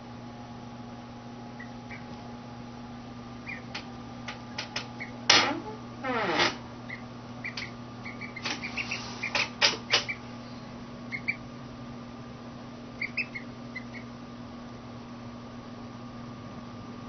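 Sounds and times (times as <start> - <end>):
steady low hum: 0.0 - 17.0
duckling peeping: 1.5 - 2.2, 3.4 - 5.3, 6.8 - 11.5, 12.9 - 14.2.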